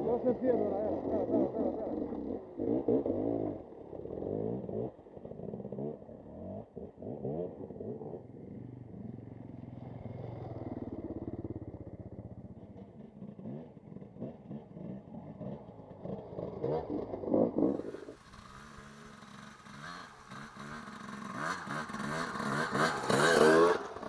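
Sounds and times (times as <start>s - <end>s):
dirt bike engines revving: 0.0s - 24.0s.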